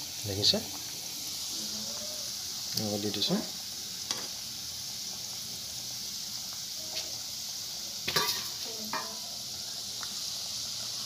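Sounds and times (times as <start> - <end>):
food deep-frying in oil: 0.0 - 11.0
metal spoon clinking on pan: 8.1 - 9.2.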